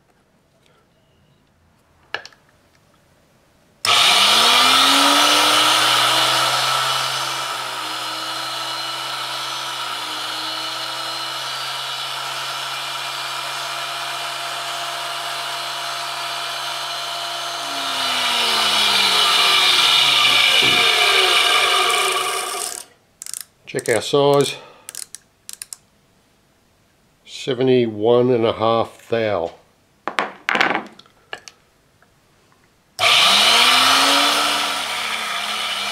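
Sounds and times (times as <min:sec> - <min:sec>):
grinder motor spinning up: 0:03.9 - 0:23.4, 0:33.0 - 0:35.9.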